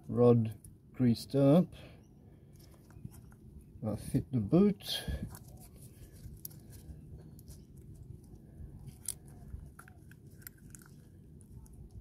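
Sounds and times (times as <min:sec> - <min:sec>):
low background hum: 0:00.0 - 0:12.0
soft squishing: 0:05.2 - 0:12.0.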